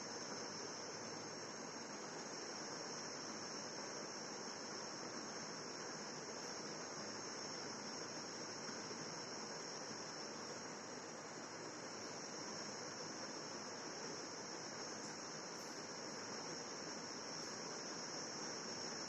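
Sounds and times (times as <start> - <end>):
electronic hiss: 0.0 - 19.0.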